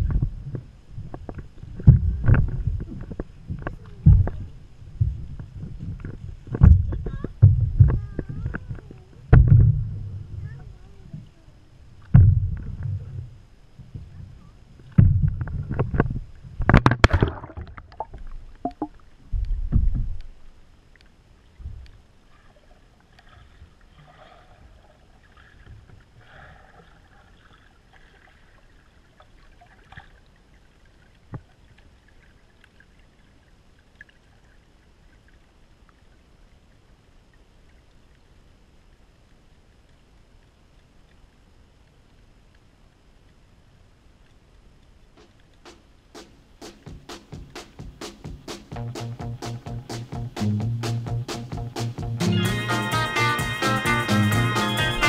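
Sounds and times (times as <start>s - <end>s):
faint distant underwater sounds: 0.0s - 48.7s
splashing and knocking: 15.0s - 20.2s.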